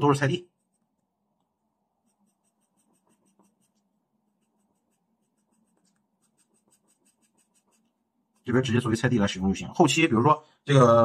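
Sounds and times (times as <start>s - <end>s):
pencil scratching on paper: 0.0s - 1.1s, 1.9s - 9.0s.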